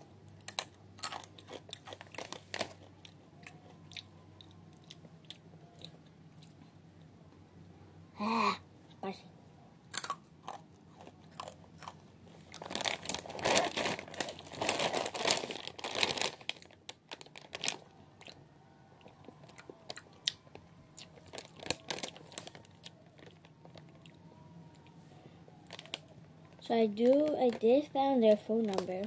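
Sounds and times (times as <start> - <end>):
person chewing crunchy chips: 0.4 - 6.6, 9.9 - 18.4, 19.0 - 24.9.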